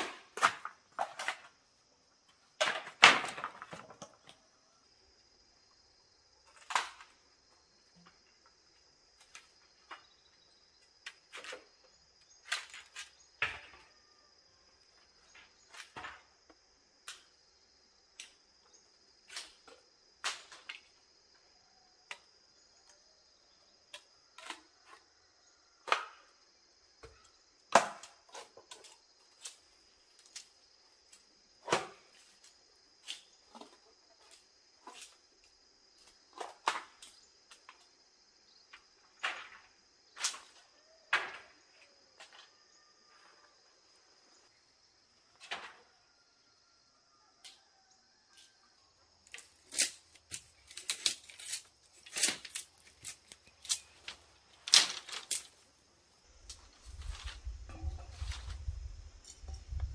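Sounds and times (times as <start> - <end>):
insects chirring: 0.0 - 59.9
tools chopping wood: 27.7 - 28.4.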